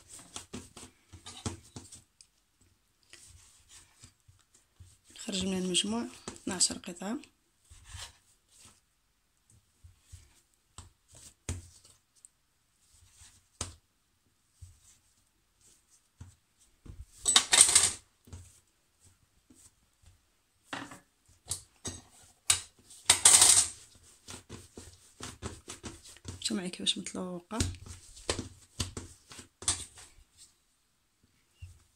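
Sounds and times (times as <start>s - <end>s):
knife tapping and scraping tiles: 0.2s - 2.0s, 20.7s - 26.4s, 27.6s - 30.1s.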